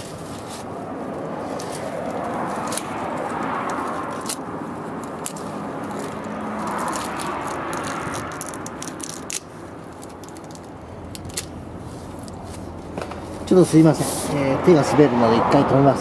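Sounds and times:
gusting wind: 0.0 - 16.0.

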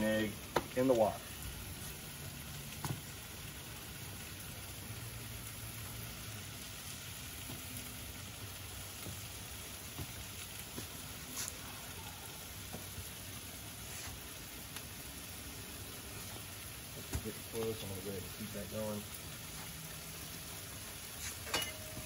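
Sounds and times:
vegetables sizzling in a wok: 0.0 - 22.0.

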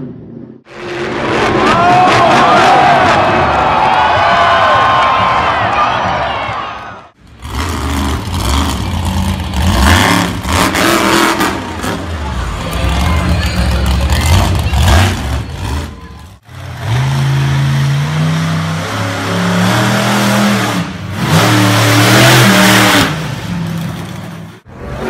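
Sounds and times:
truck engine revving: 7.1 - 25.0.

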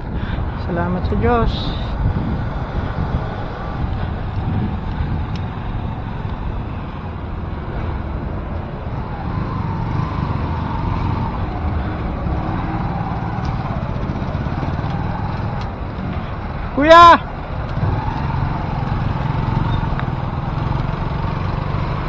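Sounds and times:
wind rumble on microphone: 0.0 - 16.7
road traffic: 0.0 - 22.0.

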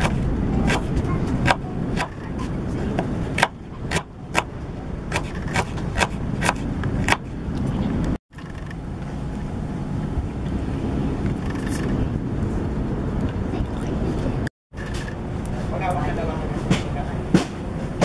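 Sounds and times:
knife chopping on wooden board: 0.0 - 2.2, 5.1 - 7.3.

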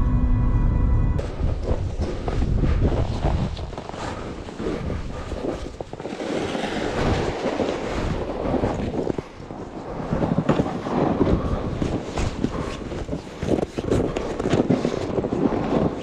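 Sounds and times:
footsteps crunching in snow: 1.2 - 9.5
sled scraping over snow and ice: 1.2 - 16.0.

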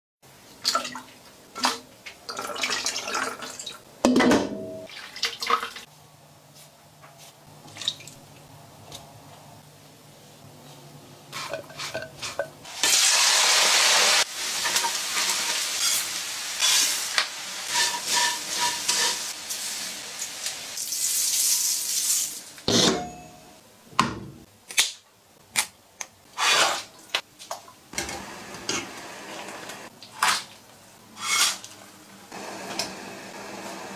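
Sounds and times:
chicken sizzling in a wok: 12.6 - 22.6, 32.3 - 33.9
utensils clacking against cookware: 14.6 - 19.4.

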